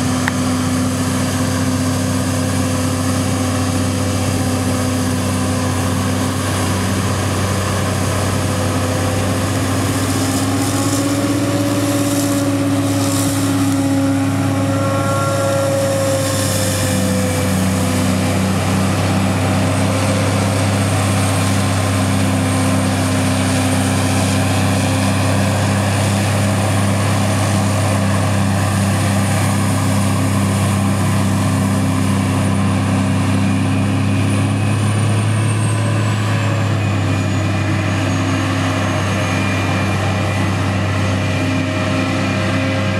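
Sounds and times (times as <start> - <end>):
loud steady engine drone: 0.0 - 42.9
faint high whine: 1.5 - 26.6.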